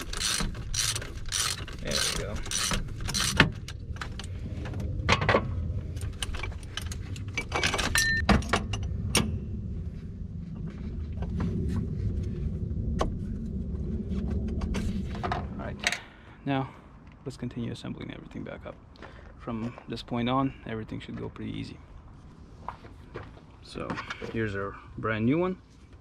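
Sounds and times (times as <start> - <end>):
low steady rumble: 0.0 - 23.7
metal tools clinking: 6.1 - 8.2.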